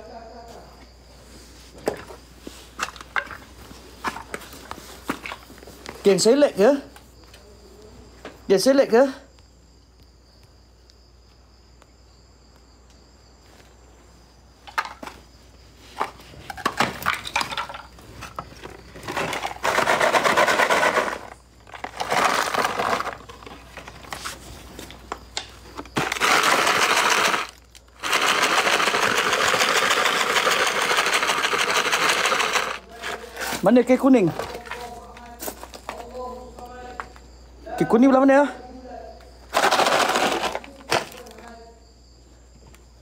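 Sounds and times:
plastic bottle rattling: 16.0 - 24.3, 25.7 - 35.0, 39.5 - 41.5
debris clicking and scraping: 16.0 - 25.0, 25.7 - 33.7, 39.5 - 41.5.

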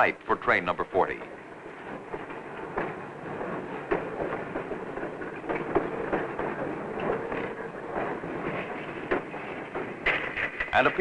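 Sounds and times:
freight car wheels rumbling: 0.0 - 11.0
clanks and clicks: 1.0 - 11.0.

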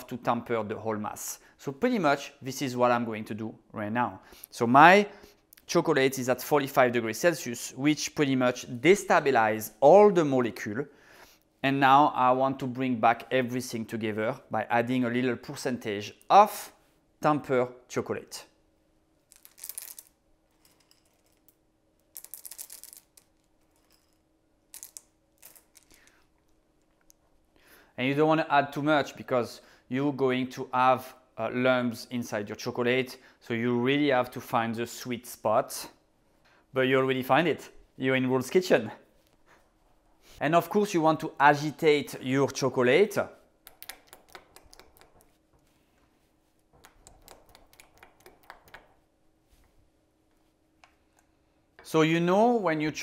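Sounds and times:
chocolate drops clattering: 19.3 - 26.6.

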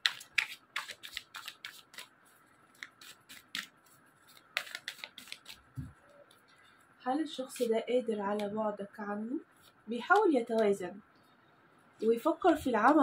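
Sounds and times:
cards shuffling: 0.0 - 6.6.

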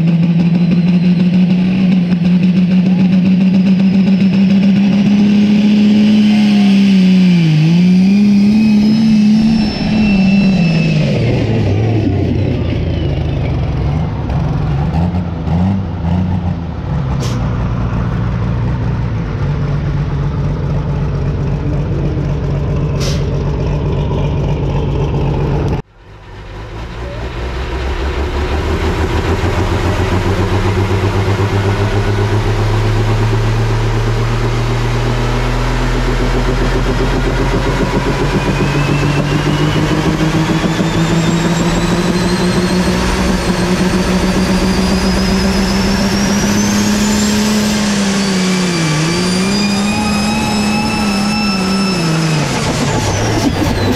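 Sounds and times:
high whine: 0.0 - 14.4, 18.7 - 53.9
diesel engine under load: 0.0 - 53.9
tractor engine running: 0.0 - 53.9.

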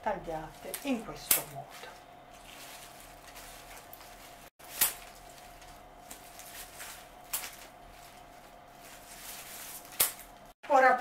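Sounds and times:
rose stems and leaves rustling: 0.0 - 10.6
stems set down on paper: 0.5 - 10.5.

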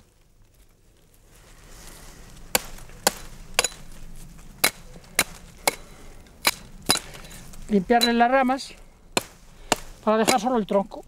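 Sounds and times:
hatchet chopping wood: 2.5 - 3.9, 4.6 - 7.2, 9.1 - 10.6.

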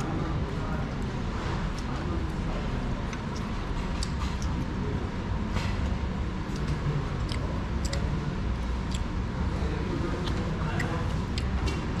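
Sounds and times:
faint steady hum: 0.0 - 12.0
low room rumble: 0.0 - 12.0.

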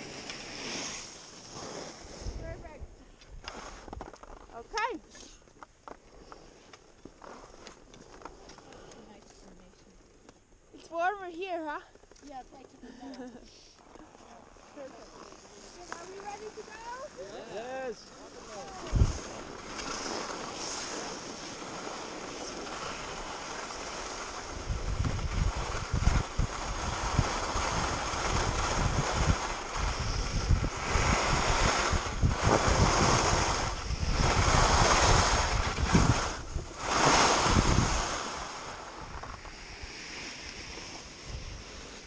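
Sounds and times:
skis scraping over snow: 0.0 - 5.0, 5.9 - 9.9, 10.8 - 42.0
wind buffeting microphone: 18.1 - 21.4, 22.1 - 39.9.

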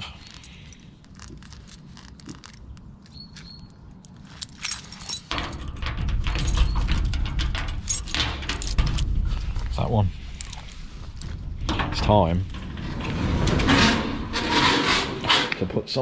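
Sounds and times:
keys jangling and clicking: 0.2 - 9.1, 10.4 - 10.7
loud low rumble with rattling: 4.4 - 15.3.

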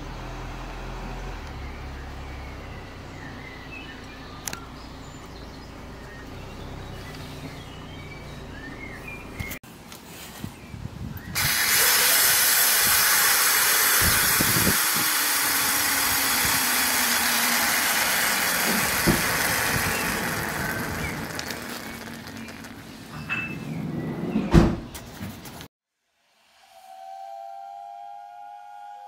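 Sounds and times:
steam hissing from valve: 11.4 - 22.4.

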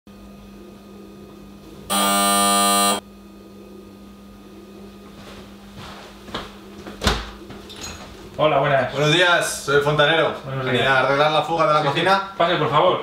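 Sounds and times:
doorbell buzzer: 1.9 - 3.0.

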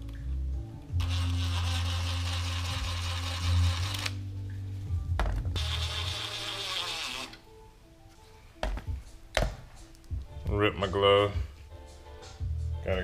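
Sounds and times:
impact driver running: 1.0 - 4.2, 5.6 - 7.4.

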